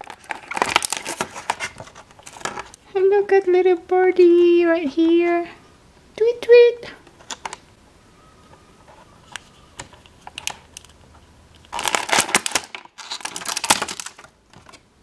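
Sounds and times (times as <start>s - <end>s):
plastic tray crackling: 0.0s - 2.8s, 8.9s - 11.0s, 11.6s - 14.9s.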